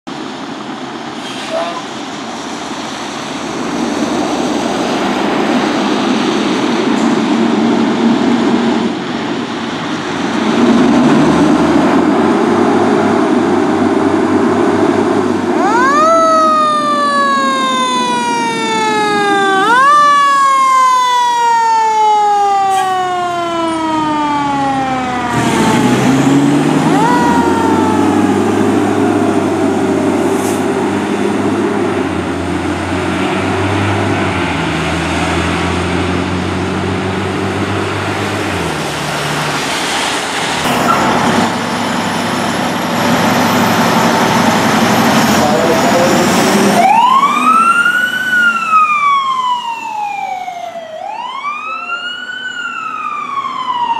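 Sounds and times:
fire engine motor: 0:00.1 - 0:53.9
siren chirp: 0:15.5 - 0:30.3, 0:44.0 - 0:53.9.

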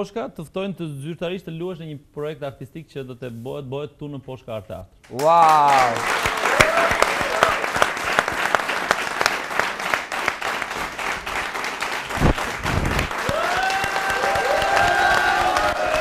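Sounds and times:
audience clapping: 0:05.0 - 0:16.0.

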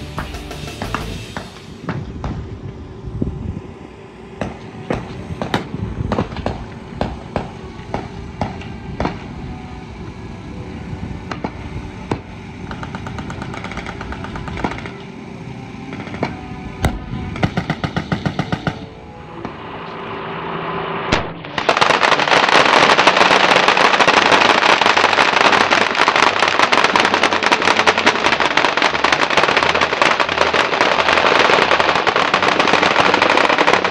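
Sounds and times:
music with drum beat: 0:00.0 - 0:01.8
machine-gun fire: 0:12.7 - 0:15.0, 0:17.4 - 0:18.8, 0:21.1 - 0:33.9.

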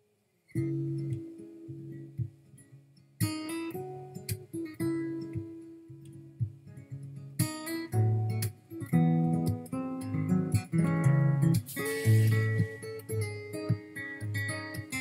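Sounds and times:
acoustic guitar picked notes: 0:00.0 - 0:15.0.

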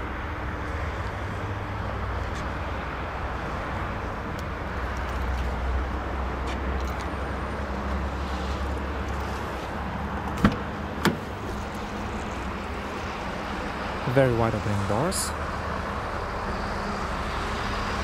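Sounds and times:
car door handle clicks: 0:10.2 - 0:11.3.

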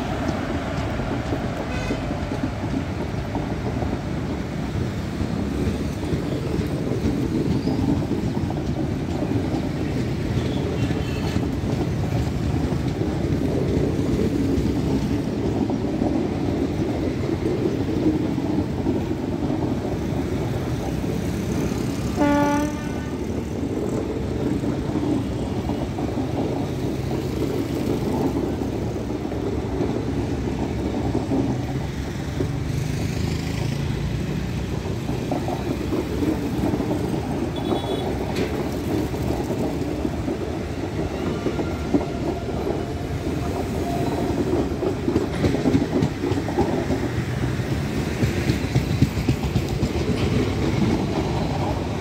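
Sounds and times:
train wheels on rails: 0:00.0 - 0:52.0
train horn toot: 0:01.7 - 0:02.1, 0:22.1 - 0:23.4, 0:37.5 - 0:38.2.

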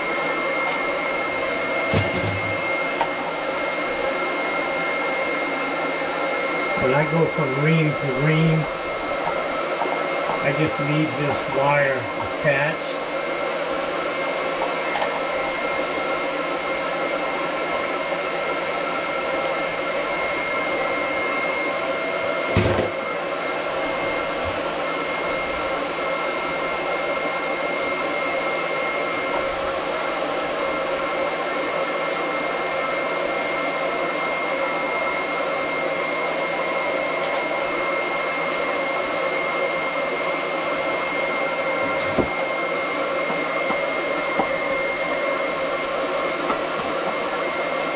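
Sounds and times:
electric motor whining: 0:00.2 - 0:26.6.

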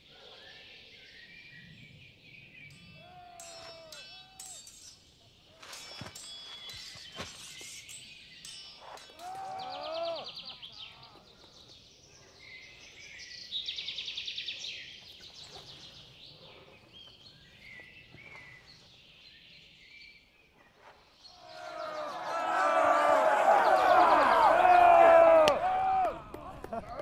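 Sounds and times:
small birds chirping: 0:00.0 - 0:22.4
faint forest hush: 0:00.0 - 0:25.8.

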